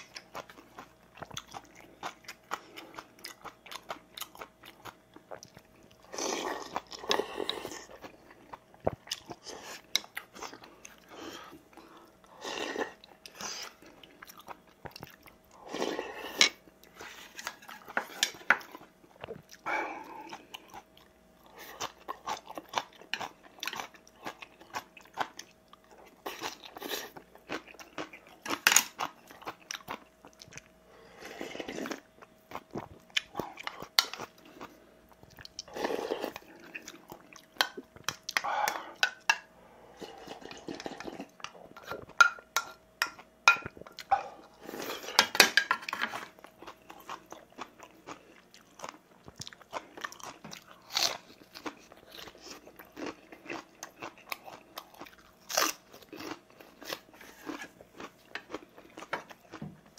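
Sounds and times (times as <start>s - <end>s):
person chewing and crunching: 0.0s - 59.9s
person slurping: 35.6s - 36.8s.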